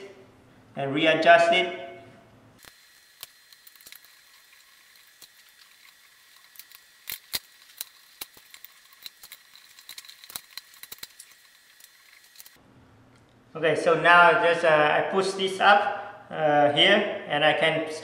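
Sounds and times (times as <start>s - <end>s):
small metal parts clicking: 2.6s - 12.6s.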